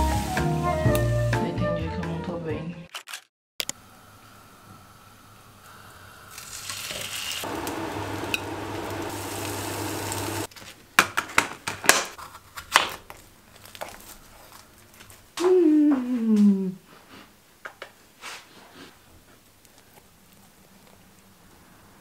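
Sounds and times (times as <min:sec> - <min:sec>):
toast sizzling in a frying pan: 0:06.3 - 0:10.5.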